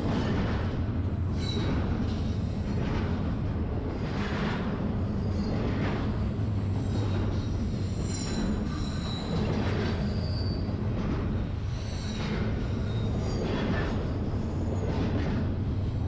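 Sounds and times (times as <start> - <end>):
freight train rumbling: 0.0 - 16.0
high-pitched wheel squeal: 7.9 - 9.4, 10.0 - 10.8.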